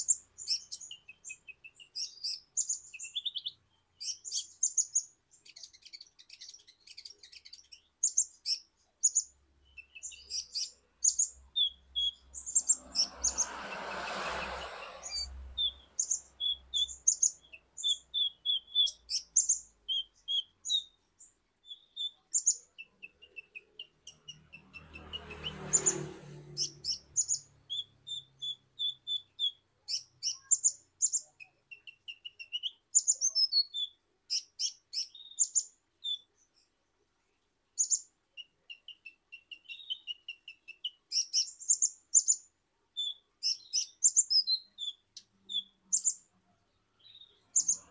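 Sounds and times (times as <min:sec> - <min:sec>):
bird twittering chirps: 0:00.0 - 0:36.7, 0:37.8 - 0:47.9
rushing noise: 0:12.8 - 0:15.5.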